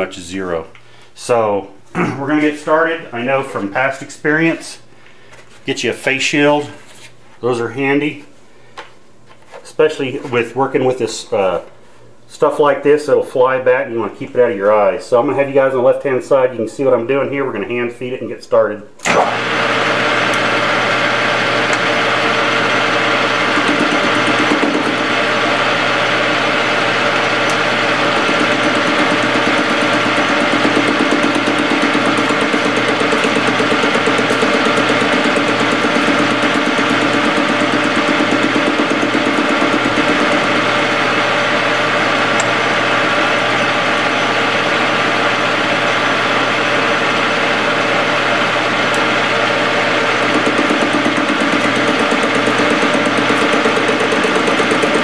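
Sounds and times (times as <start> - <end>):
metal lathe running: 19.1 - 55.0.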